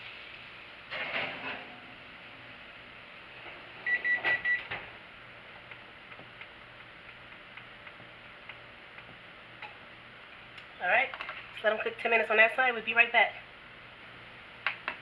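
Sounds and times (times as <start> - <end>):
faint steady hiss: 0.0 - 3.7
kitchen timer beeps: 3.8 - 4.7.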